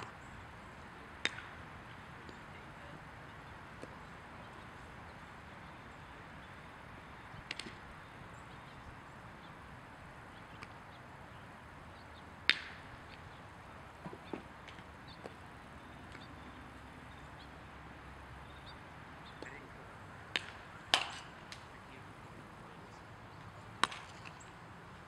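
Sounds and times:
outdoor field ambience: 0:00.0 - 0:25.0
bat hitting a baseball: 0:01.2 - 0:01.6, 0:12.4 - 0:13.0, 0:20.3 - 0:21.6, 0:23.8 - 0:24.3.

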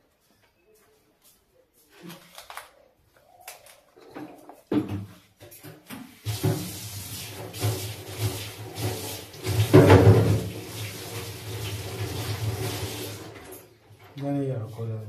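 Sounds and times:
tap water running into sink: 0:06.2 - 0:13.7.

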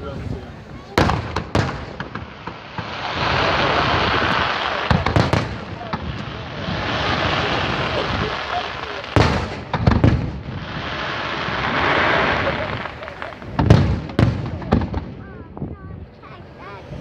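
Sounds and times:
firework booms: 0:00.1 - 0:15.8.

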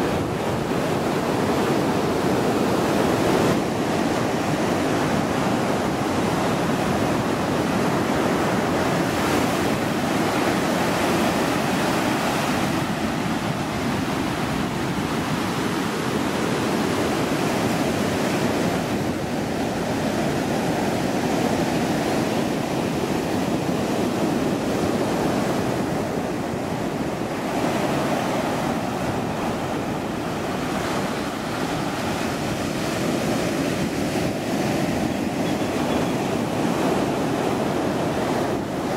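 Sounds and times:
waves breaking in shallows: 0:00.0 - 0:38.9.

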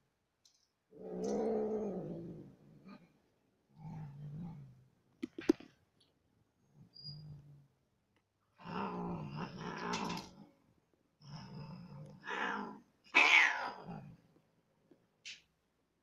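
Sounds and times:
cat yowling: 0:12.4 - 0:13.8.

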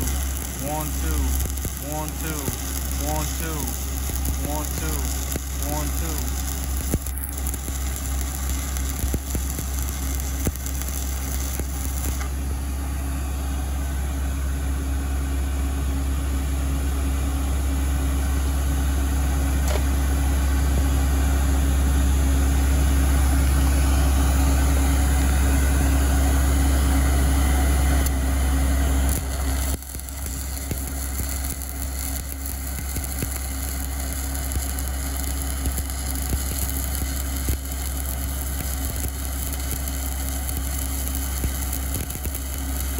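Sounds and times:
welding arc crackling: 0:00.0 - 0:12.5, 0:26.7 - 0:42.9.

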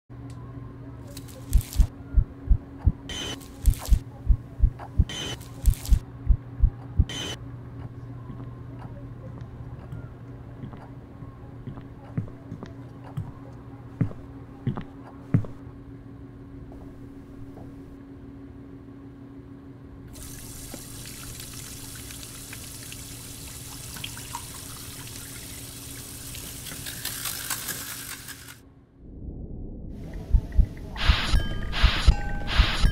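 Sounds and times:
steady low hum: 0:00.1 - 0:27.5, 0:28.5 - 0:32.9
kitchen faucet running into sink: 0:20.2 - 0:28.6.

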